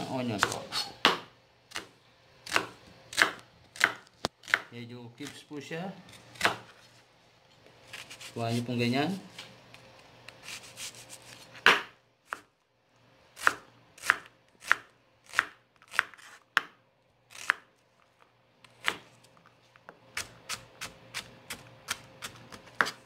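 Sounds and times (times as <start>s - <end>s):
knife chopping on board: 0.4s - 1.9s, 2.5s - 5.4s, 6.4s - 6.7s, 11.6s - 12.5s, 13.4s - 16.8s, 18.8s - 19.1s, 20.2s - 23.0s.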